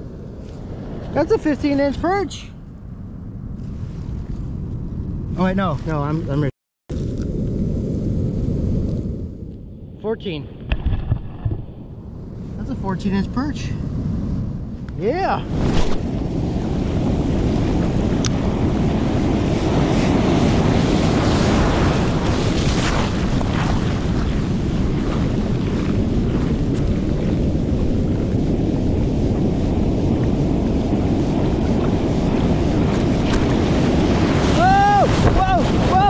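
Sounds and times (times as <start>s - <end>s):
wind buffeting microphone: 0.0s - 36.0s
ocean surf breaking: 15.0s - 36.0s.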